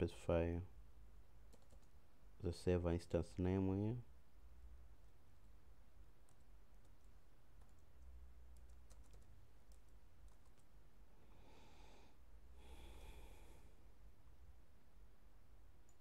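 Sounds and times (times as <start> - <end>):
soft keyboard keystrokes: 1.5 - 2.0, 6.2 - 10.7.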